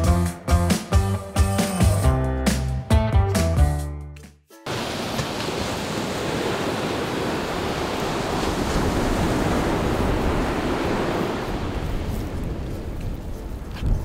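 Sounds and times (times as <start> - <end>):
surf washing onto beach: 4.7 - 13.2
wind buffeting microphone: 5.6 - 14.0.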